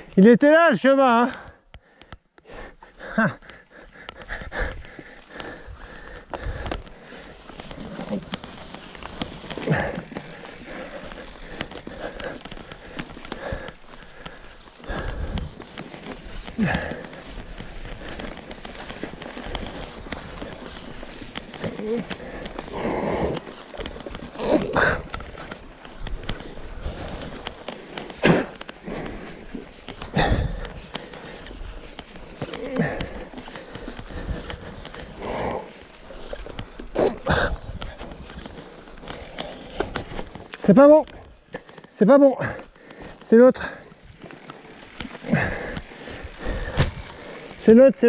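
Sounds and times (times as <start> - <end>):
bike tyres on dirt trail: 0.0 - 48.0
rider's voice: 0.1 - 1.5, 40.6 - 41.2, 42.0 - 43.8, 47.6 - 48.0
bike knocks and rattles: 3.2 - 48.0.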